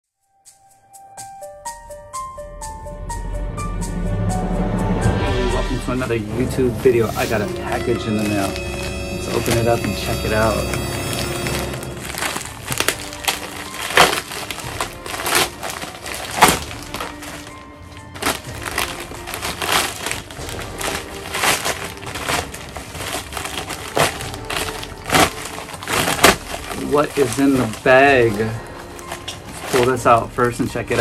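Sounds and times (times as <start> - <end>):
background music: 0.2 - 31.0
plastic mailer tearing and crumpling: 7.2 - 31.0.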